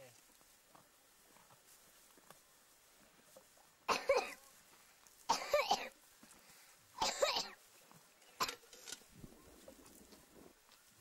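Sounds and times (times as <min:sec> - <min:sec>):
person coughing: 0:03.9 - 0:04.4, 0:05.3 - 0:05.9, 0:07.0 - 0:07.6.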